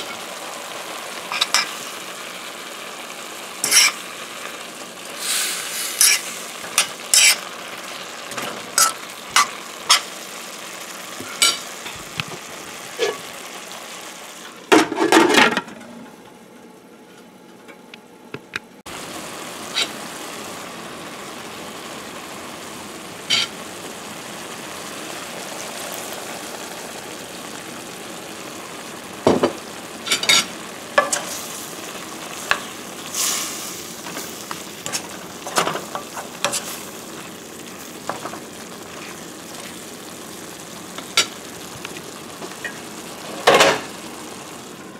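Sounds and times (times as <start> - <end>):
onions sizzling in hot oil: 0.0 - 15.2, 18.9 - 44.9
metal utensil scraping a pan: 3.6 - 4.0, 5.2 - 7.5, 13.0 - 13.3, 23.3 - 23.5, 30.1 - 31.4.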